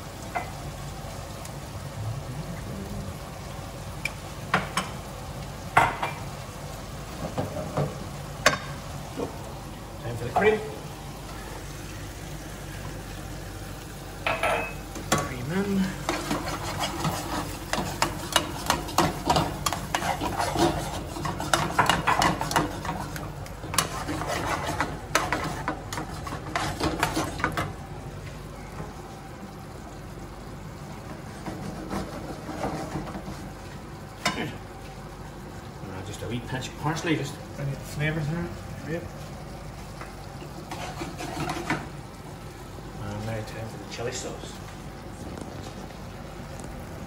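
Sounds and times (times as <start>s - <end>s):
pasta sizzling in a pan: 0.0s - 47.0s
metal tongs scraping a pan: 16.0s - 27.6s, 40.7s - 41.8s.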